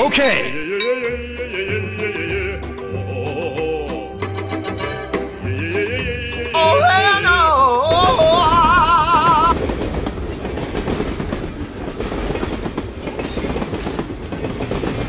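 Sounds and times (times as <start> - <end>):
train rumbling on rails: 7.8 - 15.0
wheels clacking over rail joints: 7.9 - 15.0.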